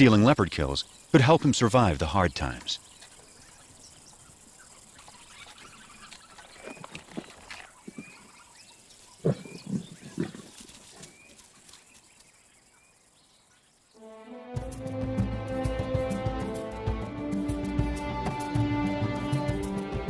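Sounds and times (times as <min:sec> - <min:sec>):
small bird chirps: 0:02.2 - 0:14.0.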